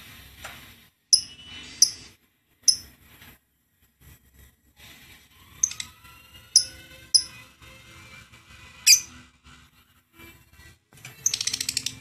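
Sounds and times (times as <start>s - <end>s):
lovebird chirping: 1.1s - 2.9s, 5.6s - 5.9s, 6.5s - 7.4s, 8.9s - 9.1s, 11.2s - 12.0s.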